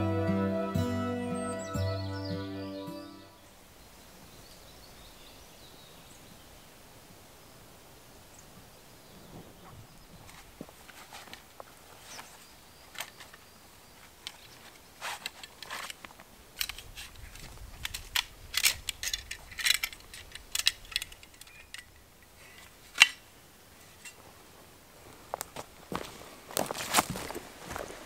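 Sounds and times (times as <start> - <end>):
metal clicks and rattles of saw: 16.6 - 23.2.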